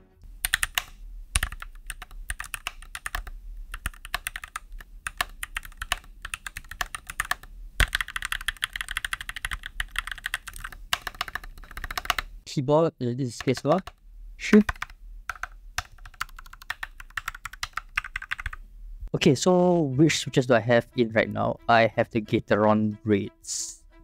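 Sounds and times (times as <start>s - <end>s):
mechanical keyboard typing: 0.4s - 12.3s, 13.4s - 18.6s.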